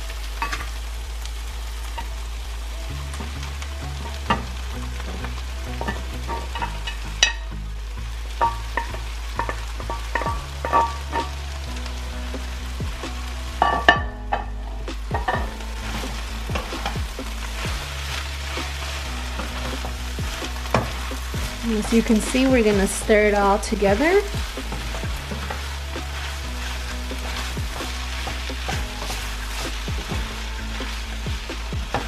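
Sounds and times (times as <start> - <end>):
chicken and onions sizzling in pan: 0.0 - 32.0
wooden spoon scraping pan: 13.6 - 32.0.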